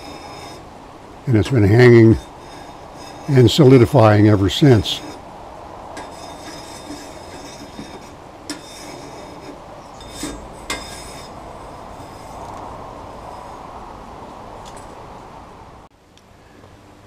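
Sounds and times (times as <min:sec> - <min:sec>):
chisel scraping steel blade: 0:00.0 - 0:00.7, 0:01.3 - 0:05.2, 0:06.0 - 0:13.6.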